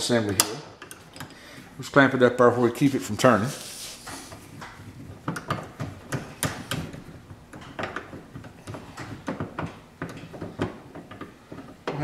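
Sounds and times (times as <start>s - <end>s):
knocks and clicks of machine parts: 4.5s - 12.0s.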